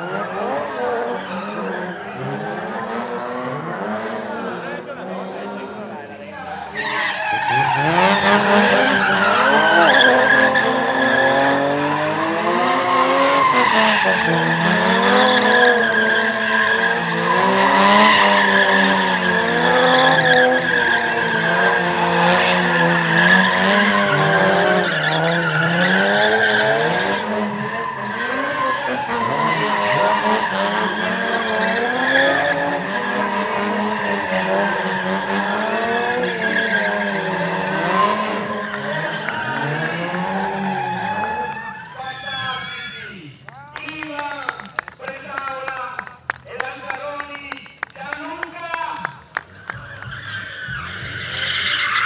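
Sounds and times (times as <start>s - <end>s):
car engines revving: 0.0s - 52.0s
tyre squeal: 6.6s - 43.2s, 49.6s - 52.0s.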